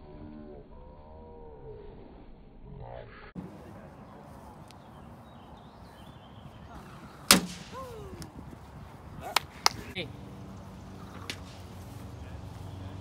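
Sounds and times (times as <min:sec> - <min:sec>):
plastic ball smack: 0:07.3 - 0:07.8, 0:11.2 - 0:11.6
short falling voice: 0:07.6 - 0:08.3
quick sharp clicks: 0:11.1 - 0:11.7.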